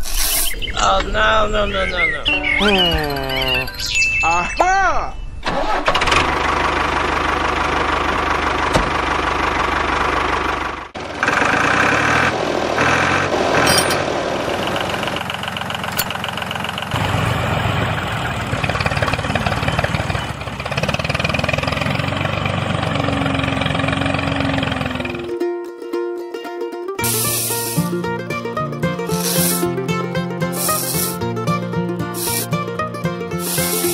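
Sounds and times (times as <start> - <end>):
tractor engine idling: 5.4 - 25.4, 27.0 - 33.9.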